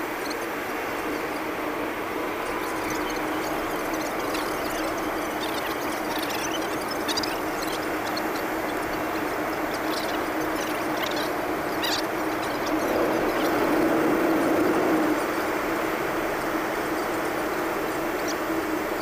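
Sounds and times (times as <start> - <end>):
vehicle drone: 9.6 - 18.2.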